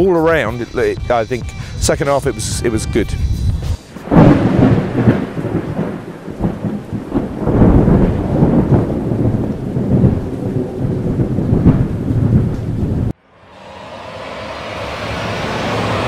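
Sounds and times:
rumbling thunder: 4.0s - 16.0s
steady rain: 4.0s - 16.0s.

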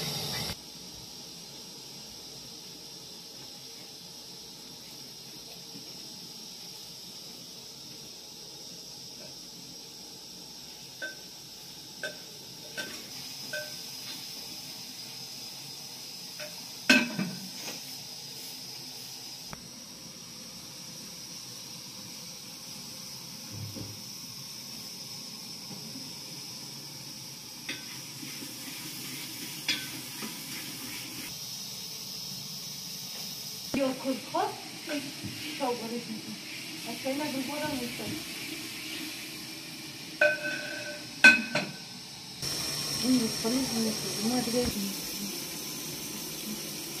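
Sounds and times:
gas burner hissing: 0.0s - 47.0s
metal pot and lid clinking: 11.0s - 11.3s, 12.0s - 13.8s, 40.2s - 41.9s.

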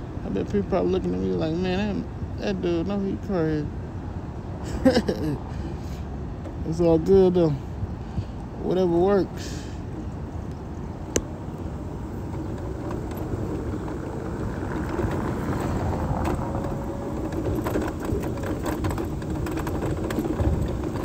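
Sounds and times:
wheelchair rolling on pavement: 0.0s - 3.7s, 8.6s - 21.0s
clicks and rattles: 11.1s - 21.0s.

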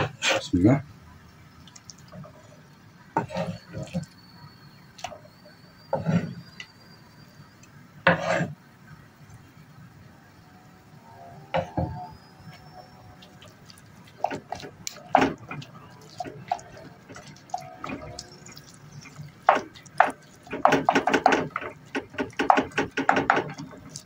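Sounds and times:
wet squelching mash: 1.6s - 2.4s, 12.4s - 24.0s
wooden spoon knocking on clay pot: 19.5s - 23.7s.

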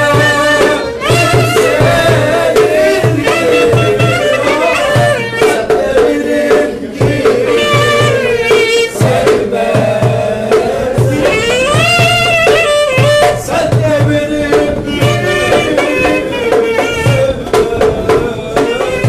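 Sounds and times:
violin melody: 0.0s - 5.6s
darbuka beat: 0.0s - 19.0s
man singing: 0.0s - 19.0s.

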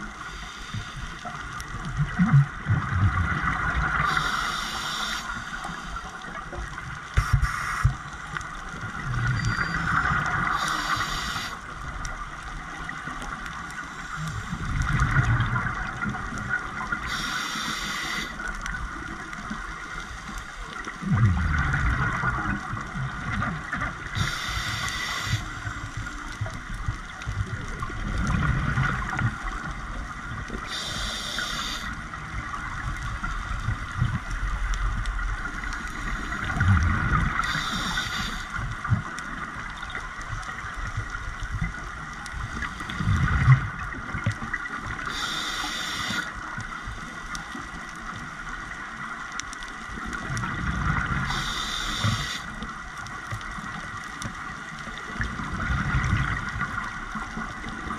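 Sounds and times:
exhaled bubbles gurgling: 0.0s - 57.9s
regulator inhalation hiss: 0.2s - 1.2s, 4.0s - 6.0s, 7.2s - 8.0s, 10.5s - 11.6s, 17.0s - 18.4s, 24.2s - 25.7s, 30.7s - 32.0s, 37.4s - 38.6s, 45.1s - 46.4s, 51.3s - 52.6s.

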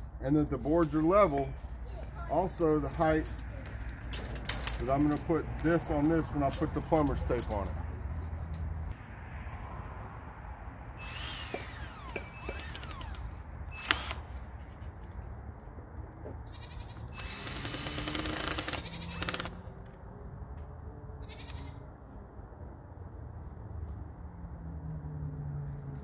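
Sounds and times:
cordless drill driving screws: 11.0s - 14.3s, 17.2s - 19.6s.

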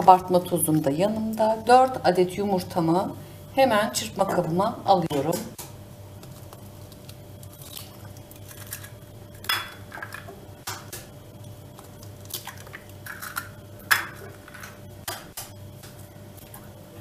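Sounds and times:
eggs cracking on metal beaters: 4.2s - 16.6s.

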